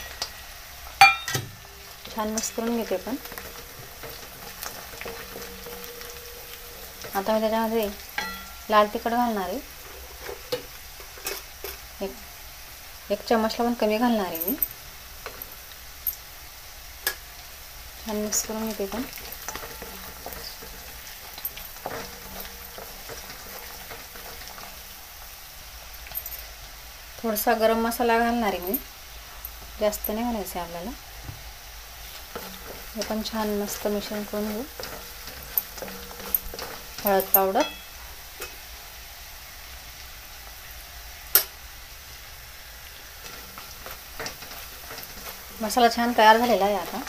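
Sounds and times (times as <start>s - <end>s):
food sizzling in oil: 0.0s - 47.0s
wooden spatula scraping pan: 18.2s - 24.9s, 32.0s - 37.6s, 43.1s - 47.0s.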